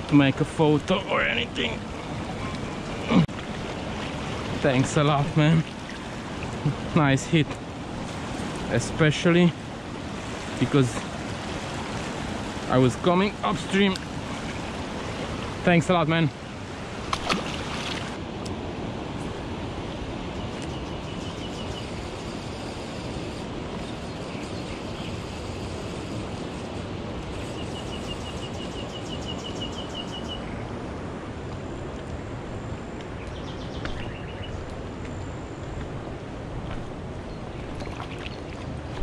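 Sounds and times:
river current rushing: 0:00.0 - 0:20.2.

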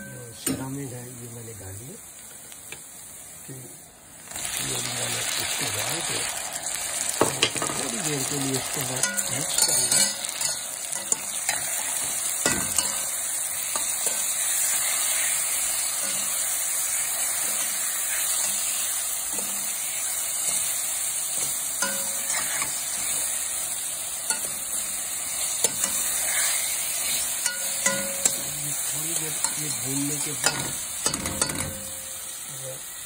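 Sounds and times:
food sizzling in hot oil: 0:00.0 - 0:33.0
spatula scraping against pan: 0:21.4 - 0:23.4, 0:25.3 - 0:31.6.

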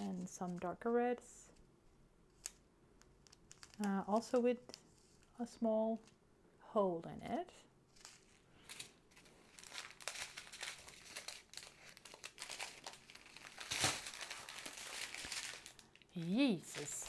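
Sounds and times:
plastic bags crinkling: 0:08.0 - 0:17.0.

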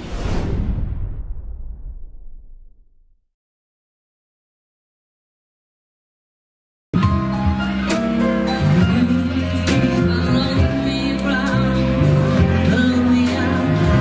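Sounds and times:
bass guitar: 0:07.0 - 0:14.0
keyboards: 0:07.0 - 0:14.0
woman singing: 0:08.6 - 0:14.0.

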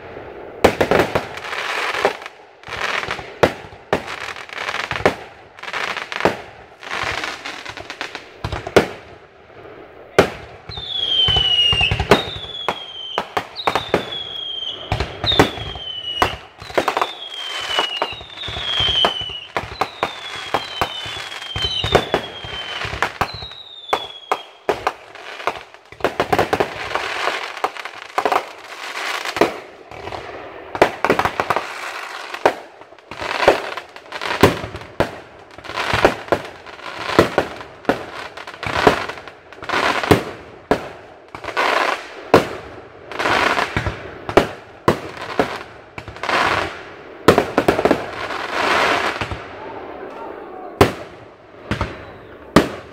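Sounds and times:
fireworks bangs and crackling: 0:00.0 - 0:52.9
falling firework whistles: 0:10.1 - 0:25.6, 0:51.7 - 0:52.8.

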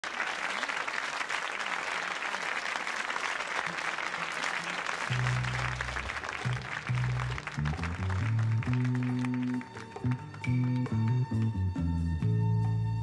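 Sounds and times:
audience applauding: 0:00.0 - 0:11.7
low held musical notes: 0:05.1 - 0:13.0.

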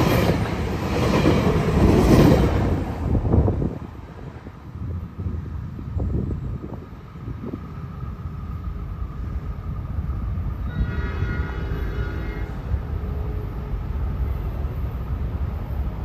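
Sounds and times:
distant train air horn: 0:10.6 - 0:13.9.

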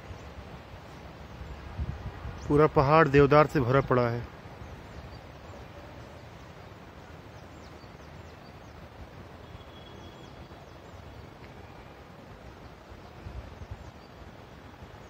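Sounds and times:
outdoor background hiss: 0:00.0 - 0:15.0
faint bird chirps: 0:07.3 - 0:15.0.

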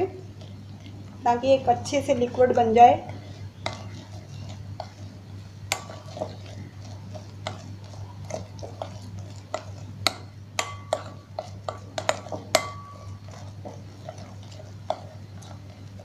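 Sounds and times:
steady low hum: 0:00.0 - 0:16.0
spoon clinking in a glass bowl: 0:10.6 - 0:11.2, 0:12.0 - 0:13.2.

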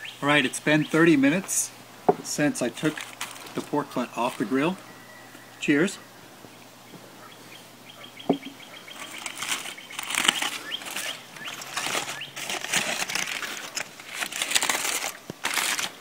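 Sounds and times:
aluminium foil crinkling: 0:02.6 - 0:04.5, 0:08.8 - 0:16.0.

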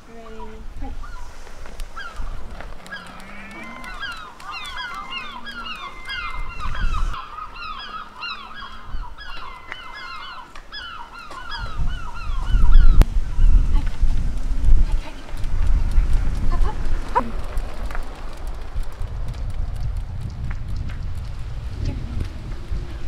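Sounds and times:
flock of birds calling: 0:00.0 - 0:18.4.

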